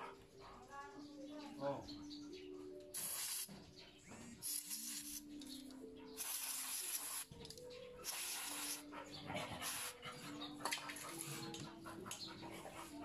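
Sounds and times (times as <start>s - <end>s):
aerosol spray hissing: 3.0s - 3.5s, 4.4s - 5.3s, 6.2s - 7.3s, 8.0s - 8.8s.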